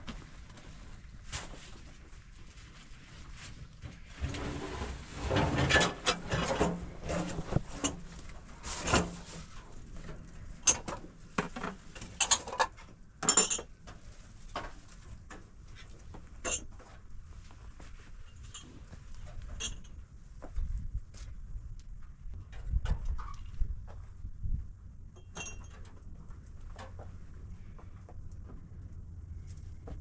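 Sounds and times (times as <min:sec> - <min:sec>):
people rustling and knocking: 0:00.0 - 0:13.0.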